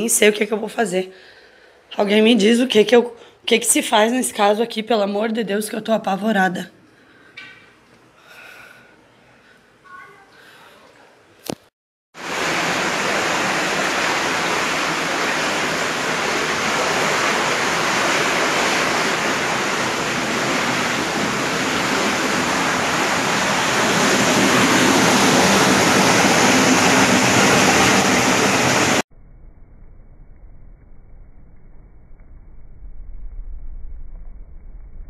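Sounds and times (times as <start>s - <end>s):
floodwater rushing and pouring: 12.2s - 29.0s.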